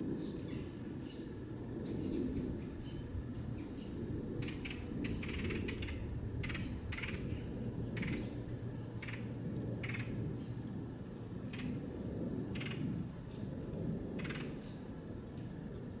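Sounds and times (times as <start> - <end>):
small songbirds chirping: 0.1 - 10.7, 12.6 - 13.6
buzzy pulsing bird calls: 0.2 - 10.7.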